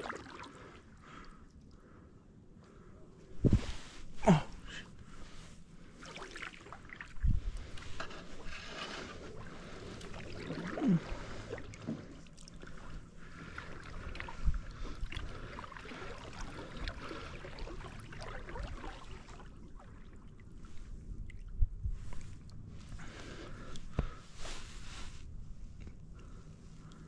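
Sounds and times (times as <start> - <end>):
water sloshing along hull: 0.0 - 4.2, 4.9 - 27.0
paddle dipping in water: 6.0 - 24.2.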